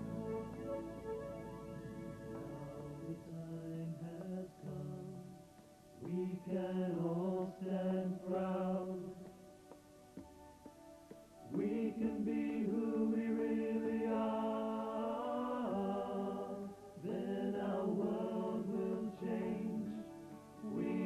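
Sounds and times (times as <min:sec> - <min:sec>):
vocal group singing in harmony: 0:02.8 - 0:05.4, 0:06.0 - 0:09.3, 0:11.4 - 0:21.0.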